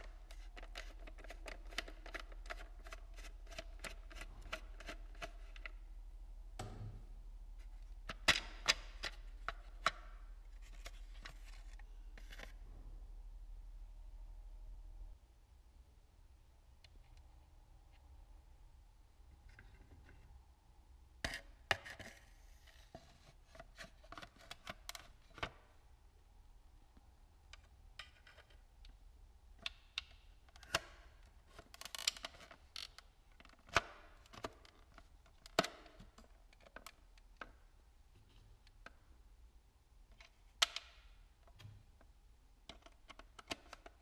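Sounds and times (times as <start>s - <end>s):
hands handling plastic parts: 0.0s - 5.8s, 6.6s - 12.6s.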